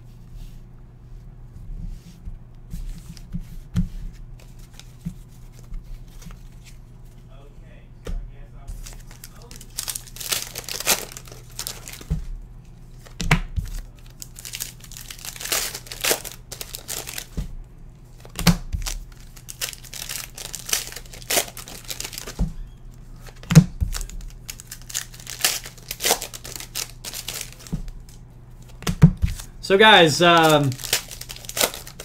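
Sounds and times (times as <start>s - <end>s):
plastic wrappers crinkling and tearing: 8.7s - 12.1s, 12.9s - 17.4s, 18.1s - 32.0s.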